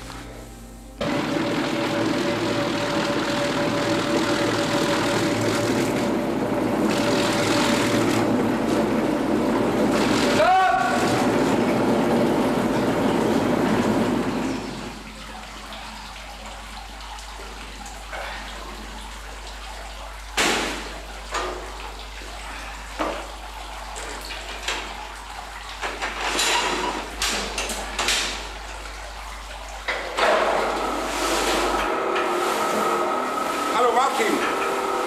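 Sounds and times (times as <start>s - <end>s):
steady machine noise: 1.0s - 15.1s, 30.6s - 35.0s.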